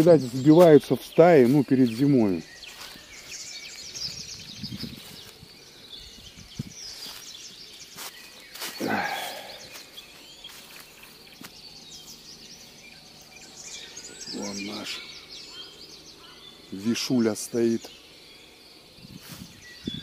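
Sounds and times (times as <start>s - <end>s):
footsteps in dry leaves: 0.0s - 12.4s, 19.1s - 20.0s
songbirds chirping: 0.0s - 20.0s.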